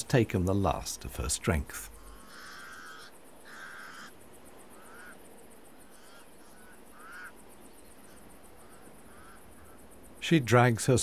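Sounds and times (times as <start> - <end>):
crows cawing: 1.8 - 10.0.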